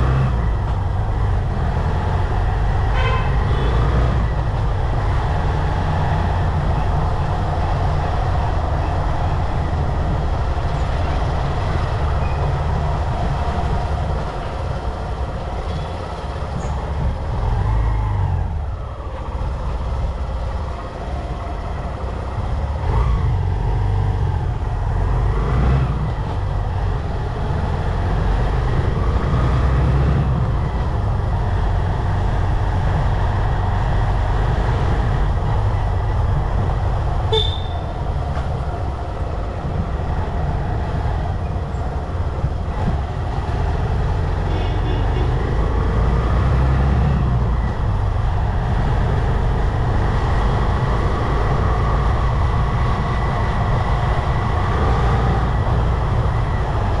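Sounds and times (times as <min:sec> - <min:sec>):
wind buffeting microphone: 0:04.1 - 0:44.4
short horn toots: 0:37.3 - 0:37.9.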